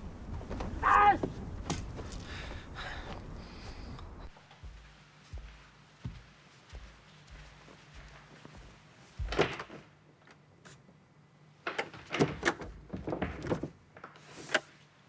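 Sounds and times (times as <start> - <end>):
door rattling and knocking: 9.2 - 9.8, 11.7 - 13.8.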